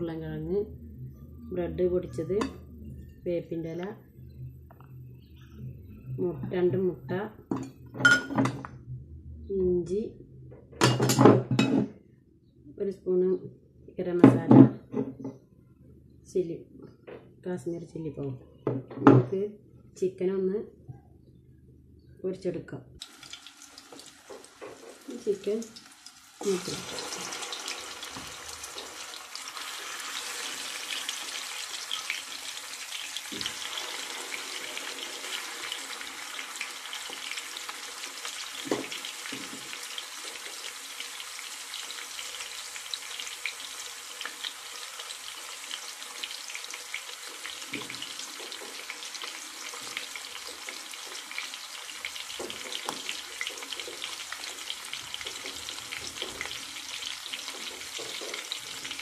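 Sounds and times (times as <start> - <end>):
chicken sizzling in oil: 23.0 - 59.0.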